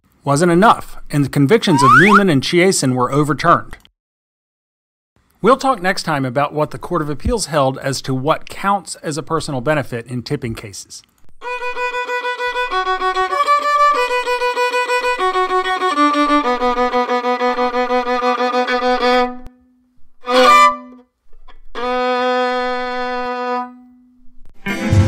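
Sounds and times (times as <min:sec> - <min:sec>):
rapidly repeated pitched notes: 0:01.7 - 0:02.2.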